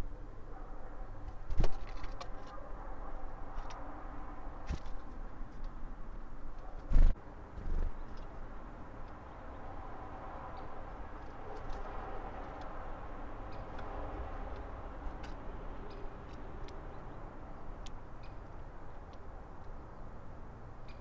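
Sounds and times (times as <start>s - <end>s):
outdoor background hum: 0.0s - 21.0s
small sharp ticks: 13.5s - 16.8s, 17.8s - 19.8s.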